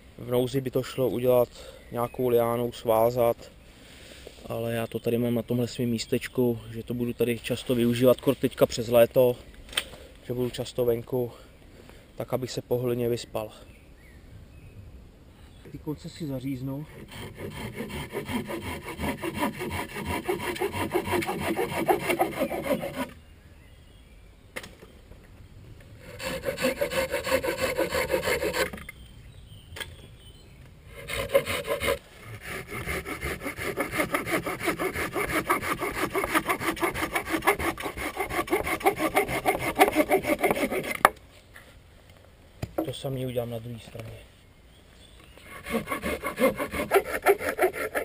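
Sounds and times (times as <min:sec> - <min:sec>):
hand saw cutting wood: 0:16.9 - 0:23.2, 0:26.0 - 0:28.9, 0:30.9 - 0:41.2, 0:45.4 - 0:48.0.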